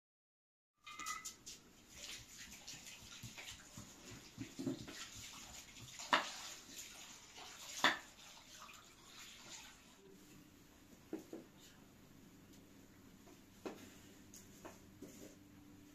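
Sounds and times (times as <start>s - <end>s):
hands sloshing rice in water: 1.9s - 10.0s.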